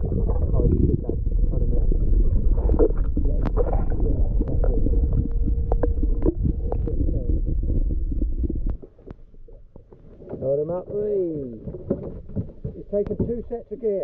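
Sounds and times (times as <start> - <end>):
underwater rumble and rush: 0.0 - 14.0
sharp clicks and knocks: 9.8 - 13.6.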